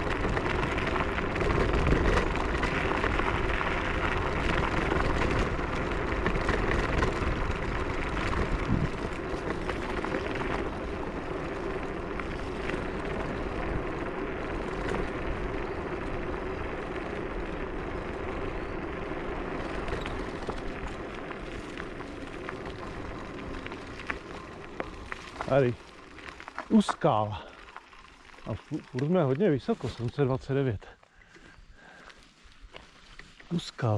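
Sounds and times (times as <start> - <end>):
wind rushing over microphone: 7.4 - 9.2.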